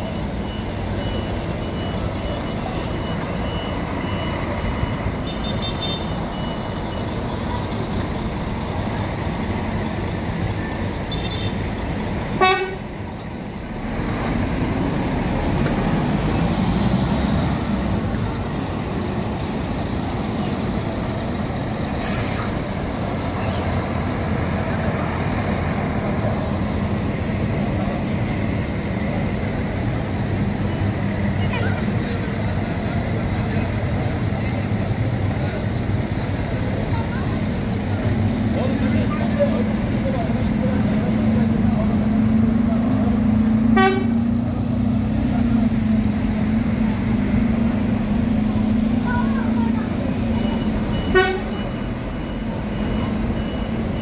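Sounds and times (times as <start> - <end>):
bus diesel engines rumbling: 0.0 - 54.0
short horn toot: 43.7 - 44.3.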